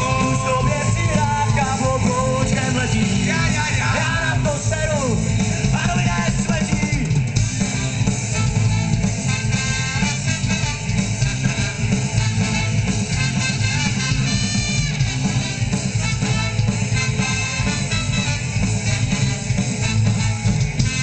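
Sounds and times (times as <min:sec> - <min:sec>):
group singing: 0:00.0 - 0:04.2
horn section: 0:00.0 - 0:05.1, 0:07.5 - 0:21.0
live ska band playing: 0:00.0 - 0:21.0.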